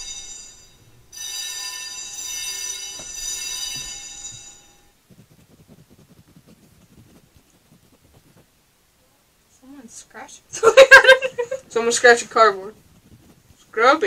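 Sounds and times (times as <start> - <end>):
fire alarm bell ringing: 0.0 - 4.9.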